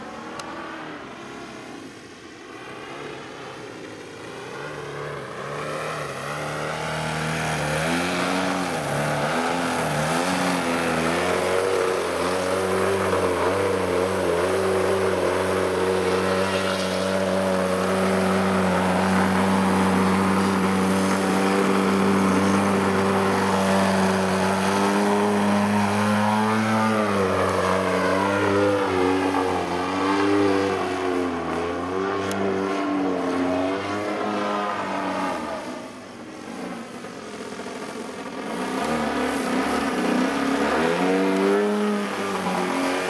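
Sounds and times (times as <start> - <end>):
model airplane engine and propeller: 0.0 - 43.0.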